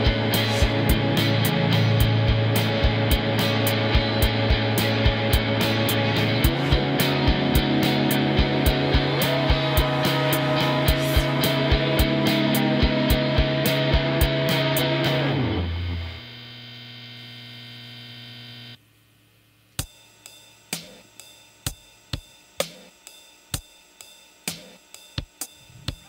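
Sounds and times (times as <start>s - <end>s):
dream-pop song held chord: 0.0s - 16.2s.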